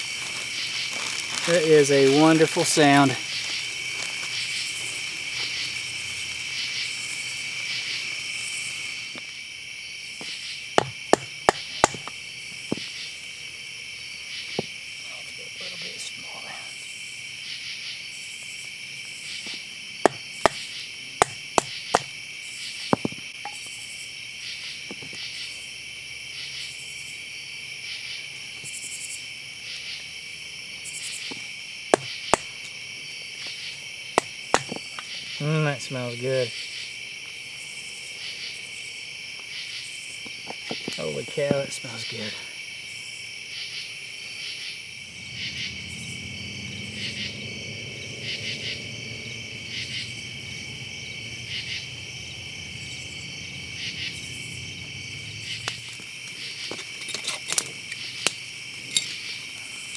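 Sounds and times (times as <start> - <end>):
insects chirping: 0.0 - 59.9
stick knocking on knife spine: 10.2 - 12.9, 20.1 - 20.6, 21.2 - 22.1, 22.9 - 23.6, 31.3 - 32.5, 34.2 - 34.8.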